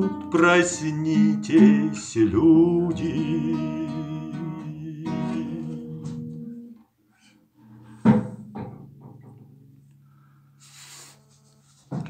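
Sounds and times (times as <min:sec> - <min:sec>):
acoustic guitar chords ringing: 0:00.0 - 0:06.8.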